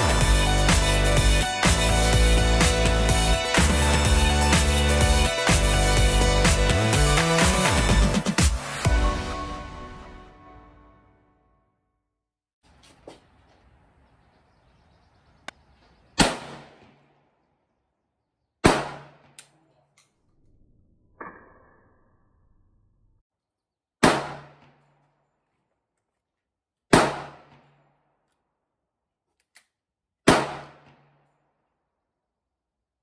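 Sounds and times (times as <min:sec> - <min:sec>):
shotgun blasts: 0:16.2 - 0:17.3, 0:18.6 - 0:19.4, 0:24.0 - 0:24.8, 0:26.9 - 0:27.8, 0:30.3 - 0:31.1.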